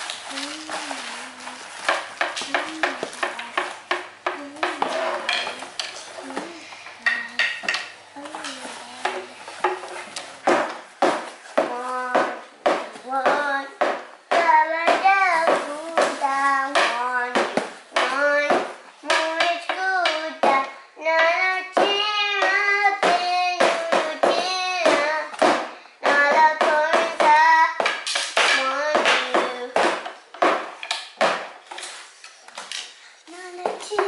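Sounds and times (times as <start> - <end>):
child singing in a high voice: 0.3 - 1.7, 2.4 - 3.7, 11.6 - 30.0, 33.3 - 34.0.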